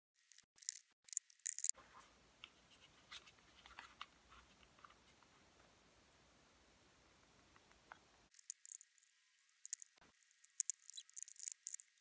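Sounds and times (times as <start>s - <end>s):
hands handling plastic parts: 0.2s - 5.7s
scratchy rustling: 1.7s - 5.5s.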